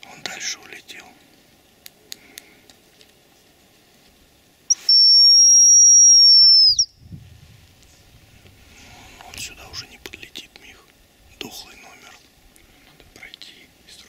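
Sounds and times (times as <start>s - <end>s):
decoy whistle call: 4.7s - 7.0s.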